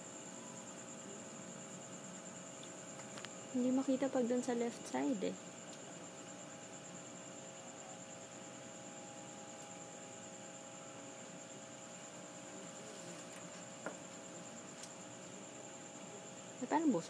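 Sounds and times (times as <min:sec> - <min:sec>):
electrical mains hum: 0:00.0 - 0:17.0
high pulsing insect trill: 0:00.0 - 0:17.0.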